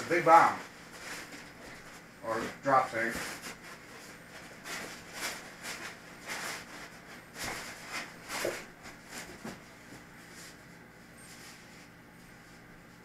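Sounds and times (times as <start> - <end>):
foam packing tray rustling: 2.4 - 10.6.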